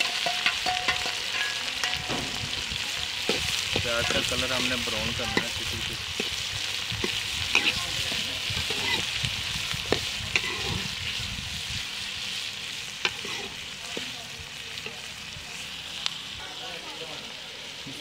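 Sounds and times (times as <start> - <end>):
metal ladle clinking on pan: 0.0 - 2.4
onions sizzling in pan: 0.0 - 18.0.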